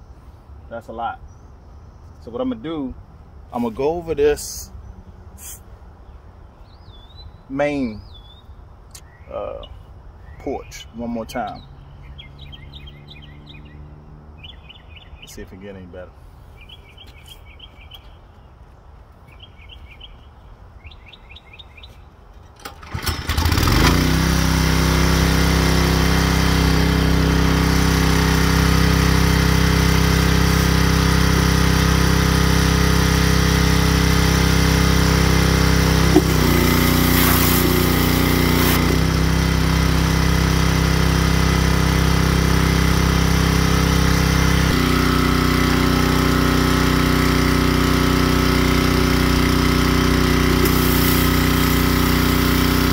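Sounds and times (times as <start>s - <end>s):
pressure washer engine running: 22.9s - 52.9s
hiss: 36.1s - 38.9s, 50.6s - 52.9s.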